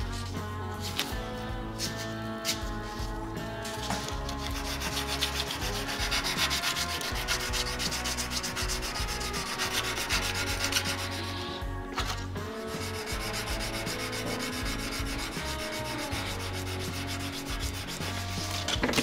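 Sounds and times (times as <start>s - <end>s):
abrasive block scratching steel: 3.6s - 11.6s, 12.5s - 19.0s.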